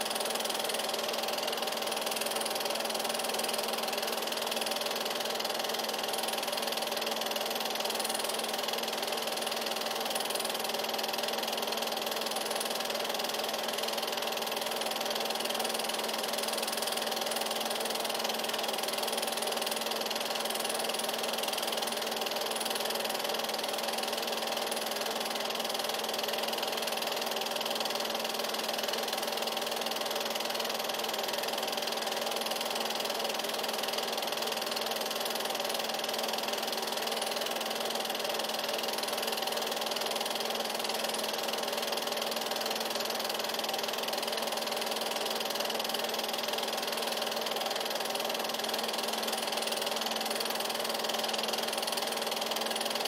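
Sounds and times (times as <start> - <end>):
film projector whirring: 0.0 - 53.0.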